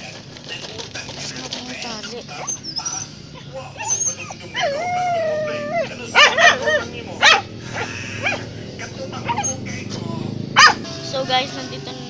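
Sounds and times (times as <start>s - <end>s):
dog whining: 1.2s - 8.5s, 9.1s - 9.7s
dog barking: 1.9s - 9.7s, 10.5s - 11.0s.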